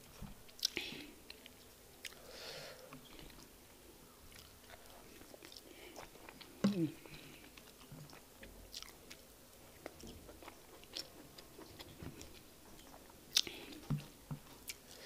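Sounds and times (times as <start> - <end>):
chewing and wet mouth smacks: 4.3 - 15.0.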